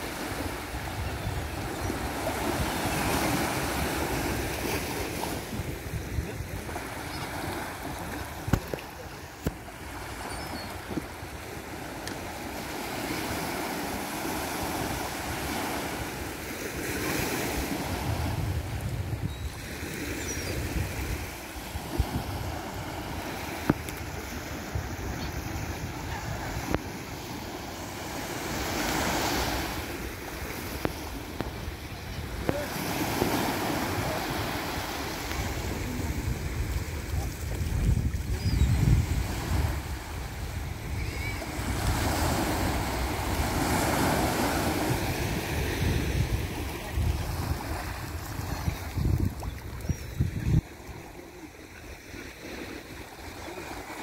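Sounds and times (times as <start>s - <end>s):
waves washing on beach: 0.0s - 54.0s
wind buffeting microphone: 17.8s - 19.5s, 35.3s - 51.2s.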